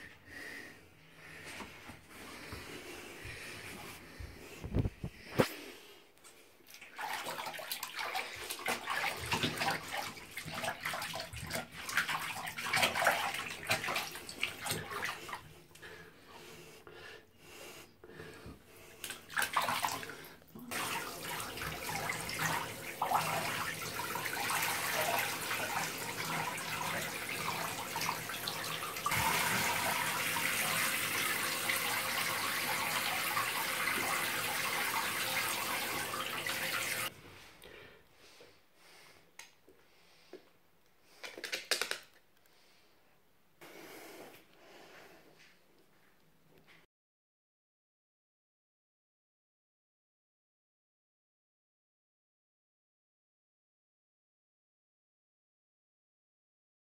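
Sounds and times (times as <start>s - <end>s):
bathwater splashing: 6.6s - 15.5s, 18.9s - 37.1s.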